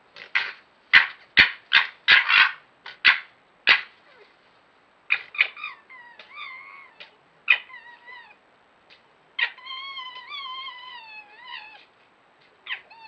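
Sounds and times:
foxes whining and yelping: 5.1 - 8.4, 9.4 - 11.9, 12.6 - 13.0.

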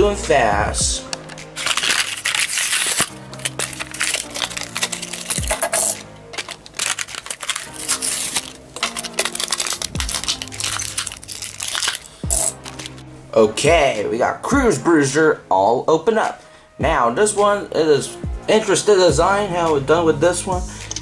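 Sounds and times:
background music: 0.0 - 21.0
plastic packaging crackling: 1.2 - 13.0
cardboard tearing: 1.6 - 13.0.

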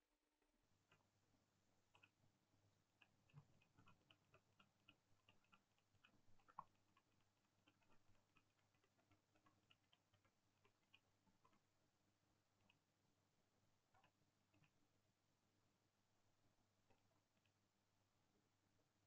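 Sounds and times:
computer mouse clicks: 1.9 - 2.2, 3.0 - 11.7, 13.9 - 14.8.

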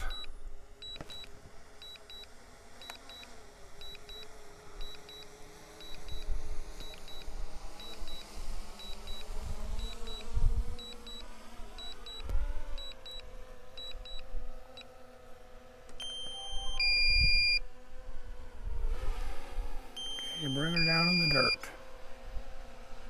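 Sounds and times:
drone propellers humming: 0.0 - 23.0
wind buffeting on microphone: 9.3 - 10.8
two-note electronic tone: 16.0 - 17.6, 20.0 - 21.7
short high double beeps: 20.0 - 21.7.

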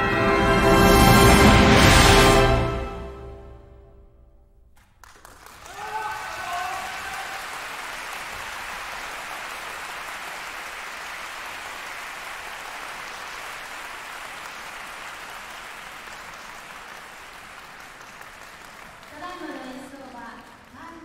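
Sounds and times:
audience applauding: 4.8 - 21.0.

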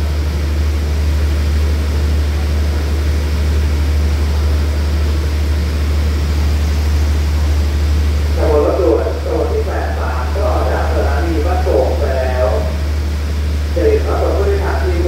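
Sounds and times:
diesel train engine idling: 0.0 - 15.0
steady hiss: 6.0 - 15.0.

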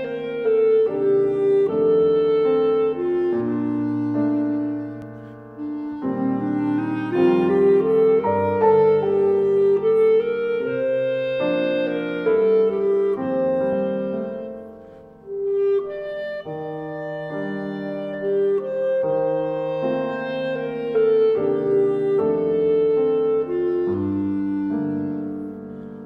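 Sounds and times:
background music melody: 0.0 - 26.0.

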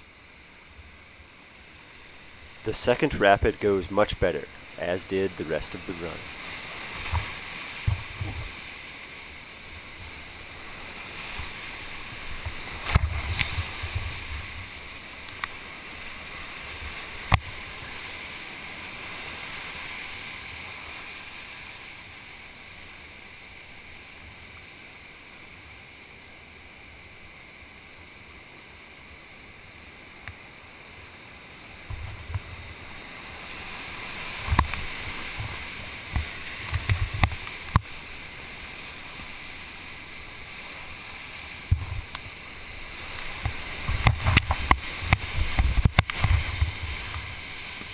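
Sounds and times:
whitewater rushing: 0.0 - 47.9
knocks and splashes against boat: 7.0 - 8.6, 34.4 - 37.9, 41.6 - 42.3, 43.2 - 47.9.

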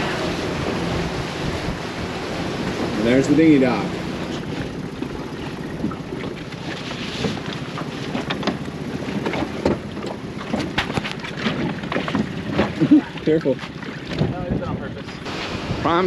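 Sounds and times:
outboard motor running low: 0.0 - 16.0
wind rumble on microphone: 0.0 - 16.0
hull knocking against dock: 4.2 - 14.6.

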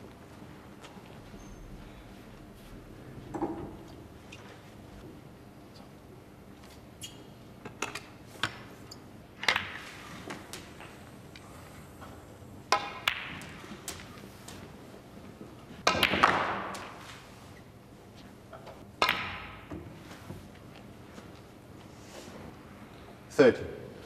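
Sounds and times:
snooker balls clacking: 9.4 - 11.0, 12.7 - 14.6, 15.8 - 17.2, 18.5 - 20.0
cue tip striking ball: 12.7 - 13.6, 15.8 - 17.0, 19.0 - 19.7.

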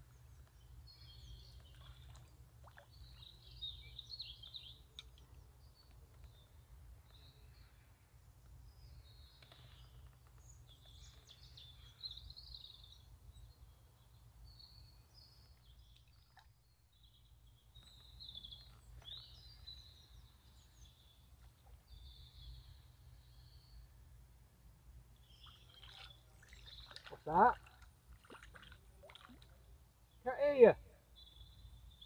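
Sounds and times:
faint birdsong chirping: 0.0 - 32.0.

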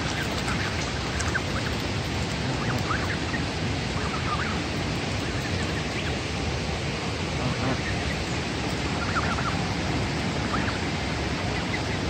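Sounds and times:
geese dabbling in water: 0.0 - 12.0
gosling peeps: 2.3 - 4.6, 8.9 - 9.6.

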